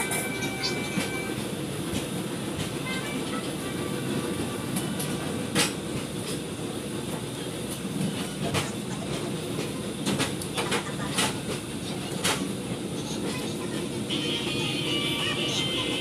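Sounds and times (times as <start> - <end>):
train wheels rumbling on track: 0.0 - 16.0
sharp train wheel clacks: 4.7 - 6.5, 8.0 - 14.0.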